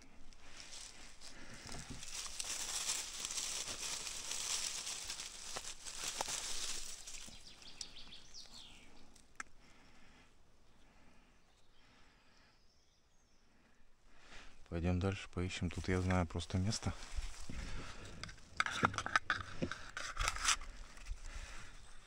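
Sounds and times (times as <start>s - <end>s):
rustling grass and dry leaves: 0.0s - 10.1s, 14.1s - 22.0s.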